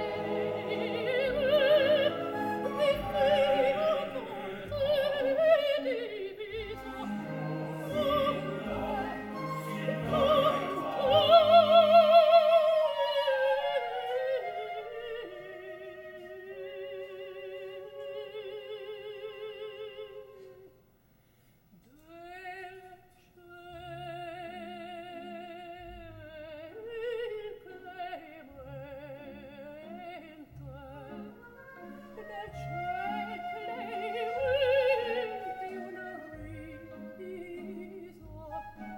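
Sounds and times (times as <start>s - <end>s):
orchestra playing: 0.0s - 15.6s, 30.7s - 38.9s
soprano singing opera: 0.0s - 20.8s, 21.9s - 38.9s.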